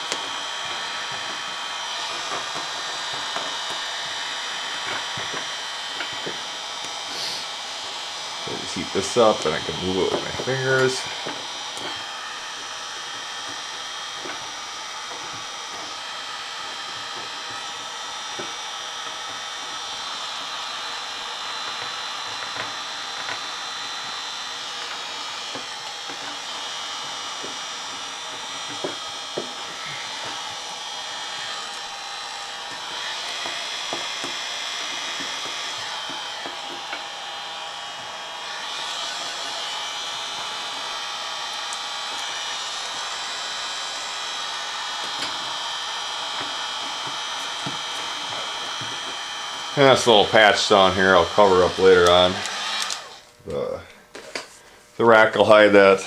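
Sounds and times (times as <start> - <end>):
heat gun whining: 0.0 - 56.0.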